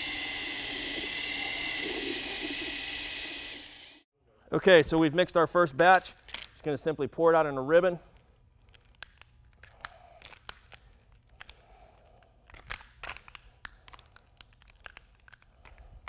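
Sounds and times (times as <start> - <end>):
faint clicks and crackles: 8.1 - 16.0.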